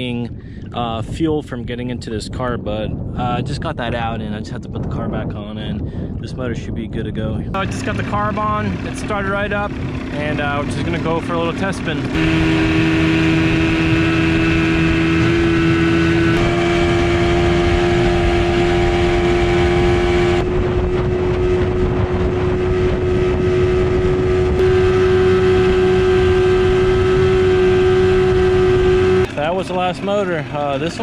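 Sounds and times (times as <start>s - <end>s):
outboard motor running: 7.6s - 31.0s.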